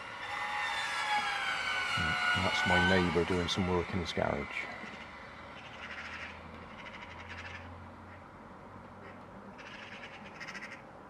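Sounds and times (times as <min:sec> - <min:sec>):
magpies chattering: 0:01.9 - 0:08.2, 0:09.0 - 0:10.8.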